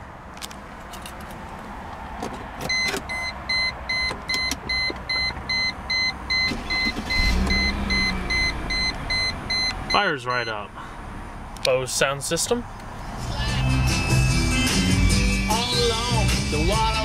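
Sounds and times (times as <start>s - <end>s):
car engine starting and idling: 2.3s - 17.0s
rapid warning chime beeps: 2.7s - 10.6s
ignition key clicks: 3.9s - 5.5s.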